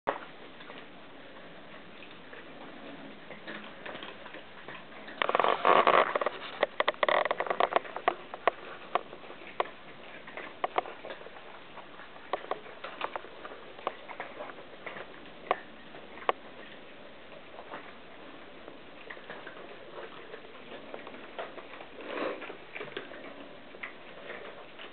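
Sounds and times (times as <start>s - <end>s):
cats crunching dry kibble: 0.1s - 24.9s.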